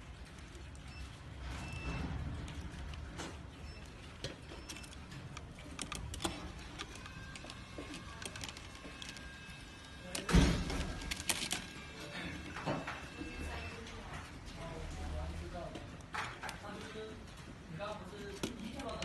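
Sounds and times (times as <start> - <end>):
plastic frame clicking and rattling: 4.1 - 9.4, 10.0 - 11.8, 18.2 - 19.0.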